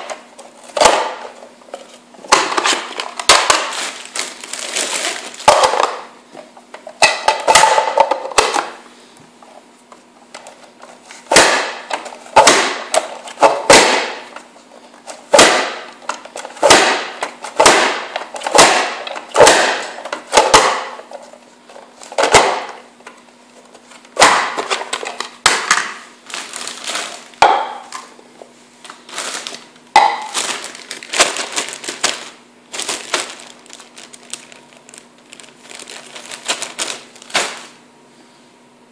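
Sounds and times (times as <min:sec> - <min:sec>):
faint steady hum: 0:00.0 - 0:38.9
vegetable chopper crunching clack: 0:11.3 - 0:14.3, 0:15.3 - 0:21.0, 0:24.2 - 0:26.0.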